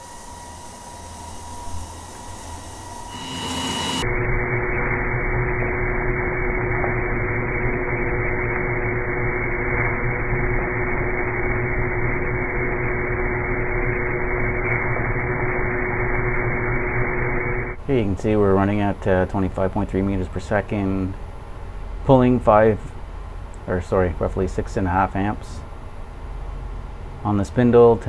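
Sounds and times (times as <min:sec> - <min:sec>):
wire saw cutting stone: 0:00.0 - 0:04.0.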